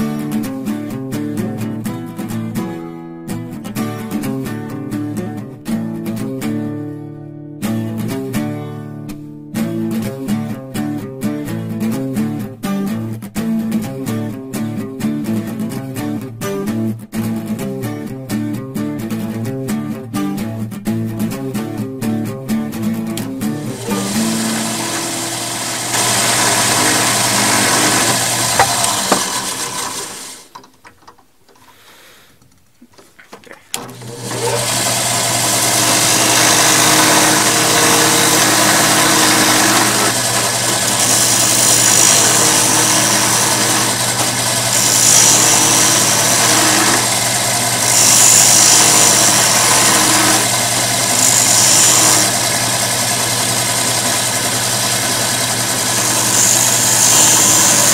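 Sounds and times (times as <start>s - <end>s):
drill press motor running: 23.6s - 30.6s, 33.8s - 57.9s.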